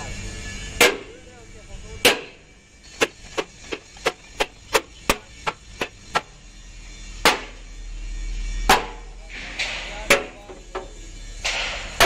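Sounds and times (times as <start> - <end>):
hammer striking steel frame: 0.5 - 1.3, 1.9 - 6.4, 7.1 - 7.7, 8.6 - 12.0.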